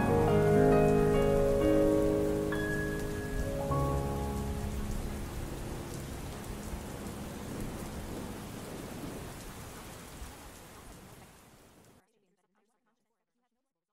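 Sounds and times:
rain hissing: 0.0s - 12.0s
low rumble: 3.4s - 9.4s.

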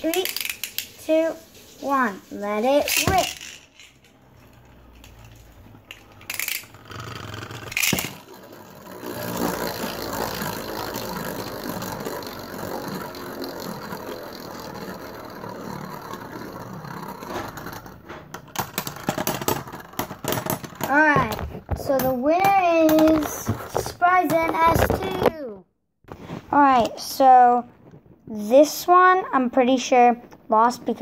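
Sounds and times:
spinning tops clacking: 0.0s - 24.8s
rattling whir of spinning tops: 0.0s - 25.5s.

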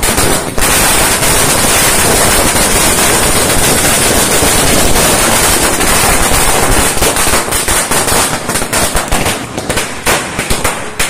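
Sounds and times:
firecrackers crackling and banging: 0.0s - 11.0s.

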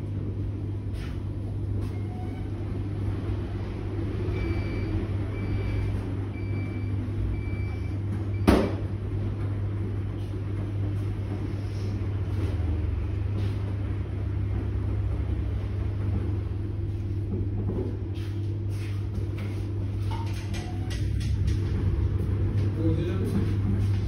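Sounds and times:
washing machine motor hum: 0.0s - 24.0s
sharp clunk: 8.4s - 8.8s.

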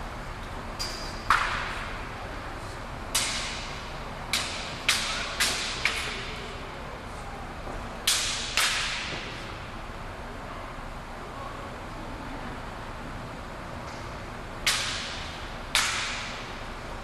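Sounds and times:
weapons clacking with ring: 0.8s - 1.7s.

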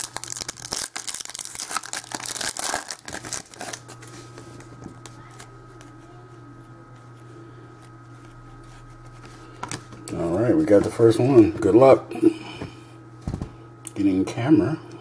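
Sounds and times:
wrapper tearing and crinkling: 0.0s - 4.1s
cards being handled: 0.0s - 6.0s, 7.8s - 11.0s.

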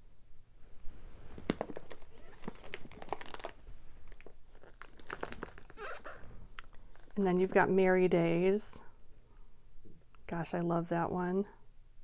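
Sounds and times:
plastic envelopes crinkling: 1.4s - 7.2s.

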